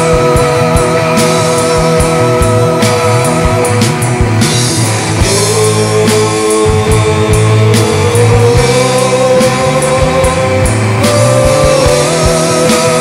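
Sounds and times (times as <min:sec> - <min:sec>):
psychedelic rock band: 0:00.0 - 0:13.0
rising lead guitar line: 0:00.0 - 0:13.0.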